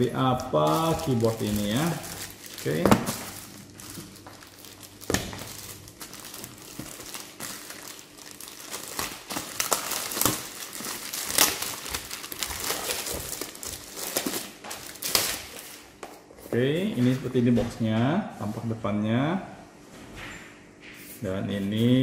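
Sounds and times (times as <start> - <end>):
plastic shrink-wrap tearing and crinkling: 0.0 - 15.8.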